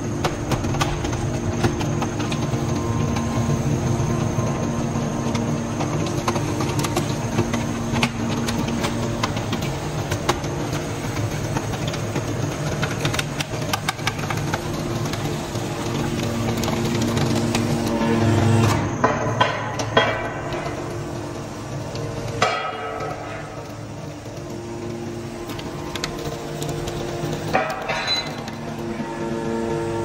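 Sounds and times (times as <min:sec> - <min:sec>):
hydraulic power unit humming: 0:00.0 - 0:30.0
sharp clicks and knocks: 0:00.1 - 0:02.5.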